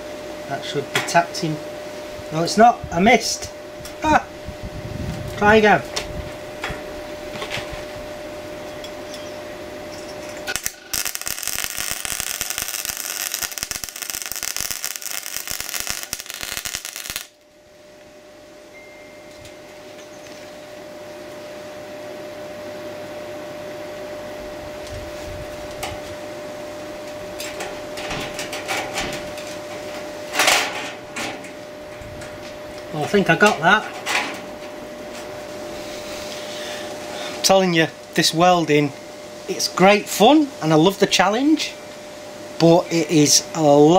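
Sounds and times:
steady hum: 0:00.0 - 0:43.9
welder arc crackling: 0:10.5 - 0:17.5.

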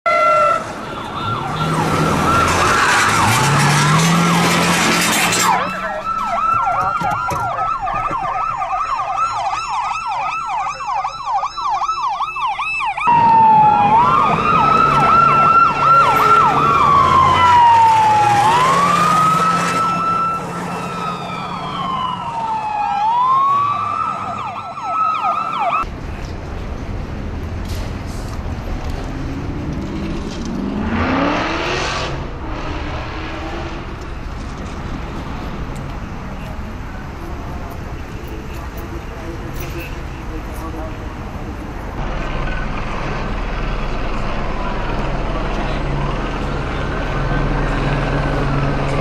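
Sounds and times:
road noise: 0:00.0 - 0:49.0
emergency siren yelp and wail: 0:00.1 - 0:25.9
vehicle engine: 0:00.2 - 0:08.6, 0:13.0 - 0:49.0.

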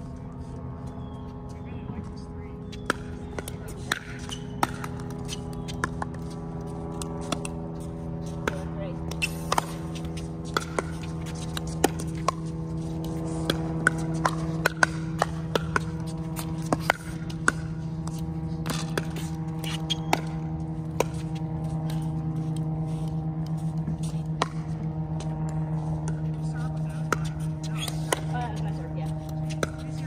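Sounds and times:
steady low hum: 0:00.0 - 0:30.0
balls bouncing on hard court: 0:00.4 - 0:30.0.

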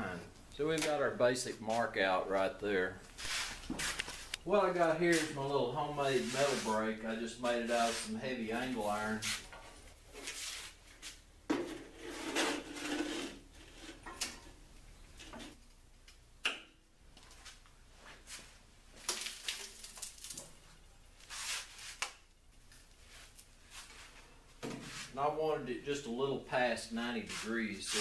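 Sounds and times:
sheet metal scraping and rattling: 0:11.6 - 0:14.5.

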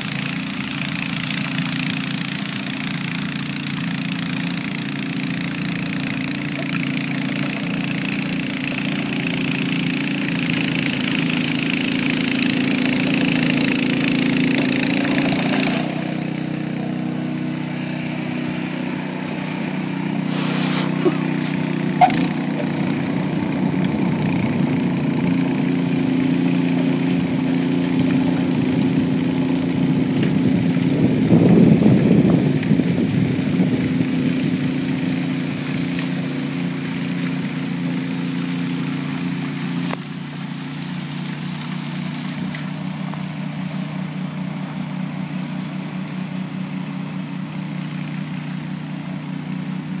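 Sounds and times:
snowblower engine running: 0:00.0 - 0:50.0
hiss of thrown snow: 0:20.2 - 0:22.4, 0:33.4 - 0:44.1.

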